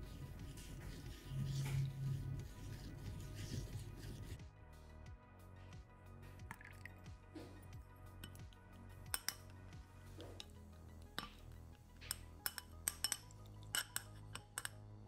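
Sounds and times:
soft background music: 0:00.0 - 0:15.0
spatula clinking on ceramic bowl: 0:08.2 - 0:09.5, 0:11.2 - 0:11.4, 0:12.0 - 0:14.8.

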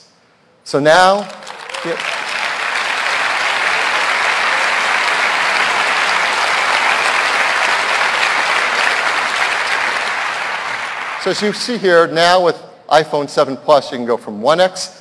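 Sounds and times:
audience applauding: 0:01.0 - 0:11.8.

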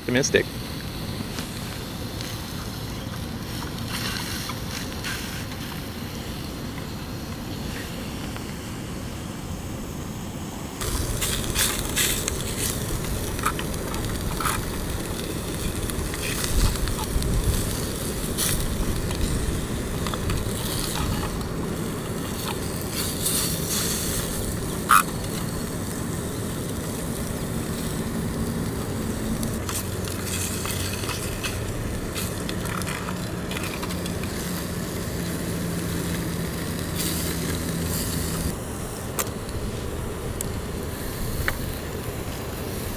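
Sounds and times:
low background rumble: 0:00.0 - 0:42.9
fish sizzling in a skillet: 0:00.7 - 0:07.0, 0:10.8 - 0:38.6.

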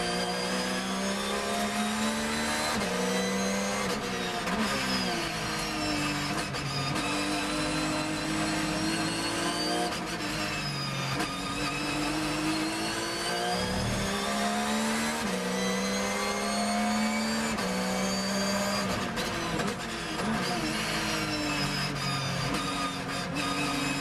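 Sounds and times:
race car engine accelerating: 0:00.0 - 0:06.3, 0:11.2 - 0:24.0.

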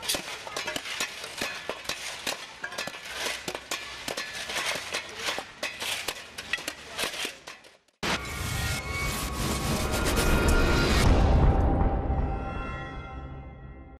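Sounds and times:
sharp metal knocks on ice: 0:00.0 - 0:07.8
shovels scraping ice: 0:00.0 - 0:10.5.

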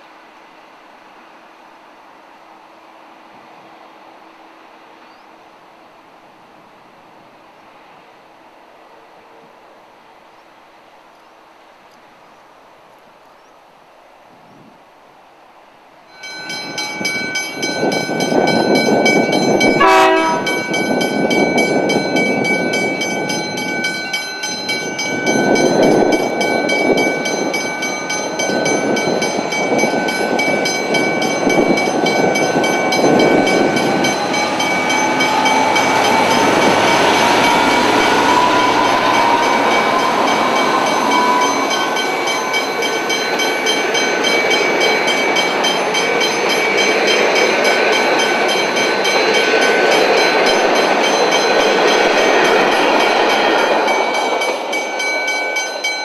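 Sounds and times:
train wheel and rail noise: 0:00.0 - 0:56.0
level crossing warning bells: 0:16.1 - 0:56.0
diesel locomotive running: 0:16.2 - 0:56.0.

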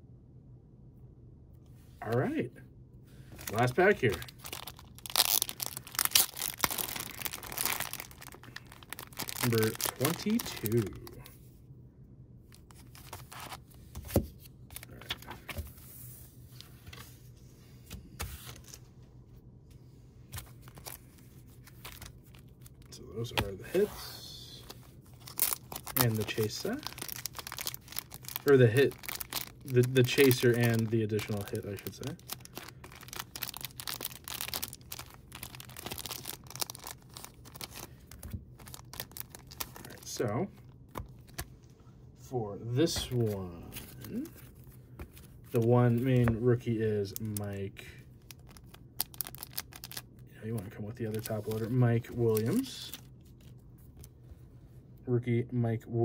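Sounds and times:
faint low hum: 0:00.0 - 0:56.0
plastic sleeves rustling: 0:03.2 - 0:11.5, 0:12.5 - 0:19.0, 0:20.2 - 0:54.3
trading cards shuffled: 0:24.6 - 0:40.1.

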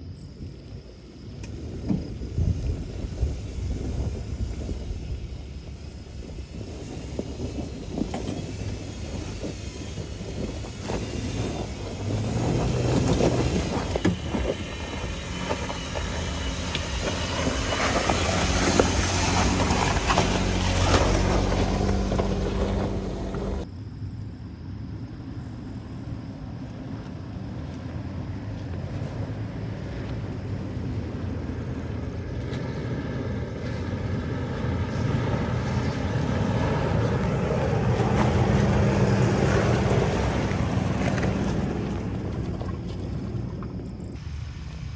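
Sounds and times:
vehicle engine creeping: 0:01.4 - 0:23.7, 0:26.6 - 0:44.3
off-road vehicle engine revving: 0:06.6 - 0:23.7, 0:31.0 - 0:44.2
stones crunching under tyres: 0:06.7 - 0:23.6.

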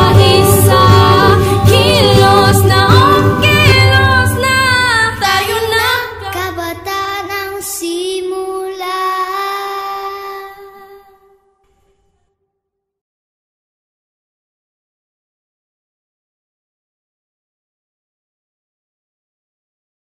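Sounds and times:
band accompaniment: 0:00.0 - 0:05.4
voices singing: 0:00.0 - 0:10.8.

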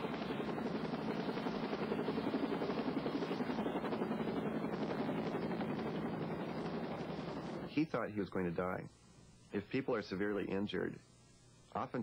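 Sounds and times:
helicopter rotor chopping: 0:00.0 - 0:08.2.

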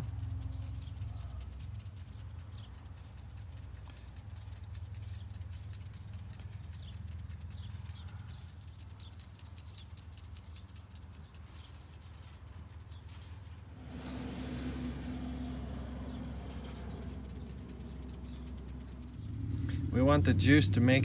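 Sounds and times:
faint fast ticking: 0:00.0 - 0:21.0
low rumble: 0:11.2 - 0:21.0.

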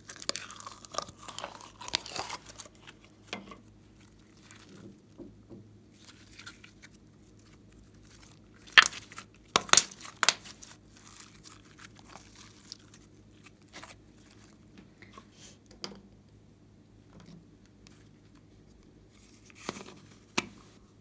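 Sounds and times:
slime crackling and popping: 0:00.0 - 0:03.1, 0:06.0 - 0:14.4.

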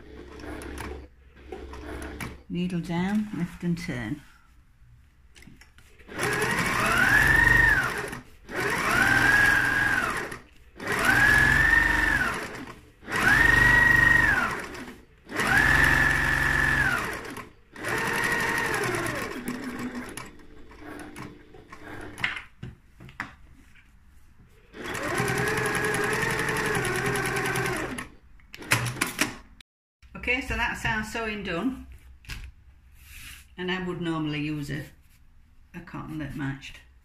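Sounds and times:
sewing machine stitching: 0:00.0 - 0:02.4, 0:06.0 - 0:22.4, 0:24.7 - 0:29.4.

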